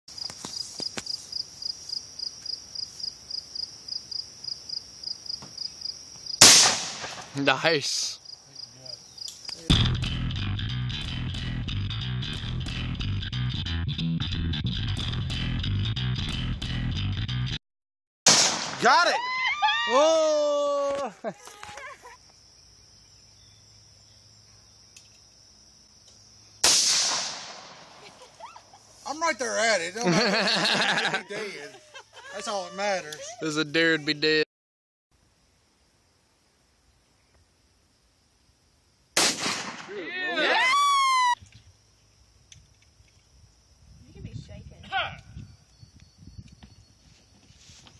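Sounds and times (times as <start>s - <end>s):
insect chirping: 0.1s - 10.2s, 18.8s - 34.3s, 35.1s - 39.2s, 39.9s - 47.9s
pistol shot: 6.4s - 7.3s, 18.3s - 19.0s, 26.6s - 27.9s, 39.2s - 40.0s.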